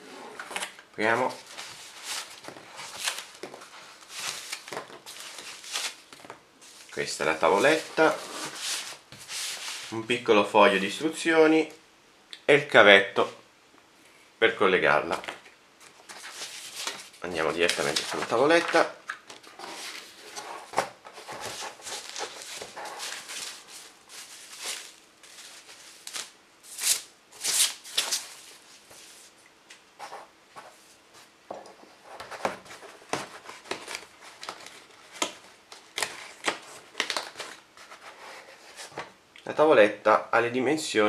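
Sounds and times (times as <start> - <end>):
packaging rustling and crinkling: 0.4 - 10.0, 15.2 - 29.3, 32.2 - 39.0.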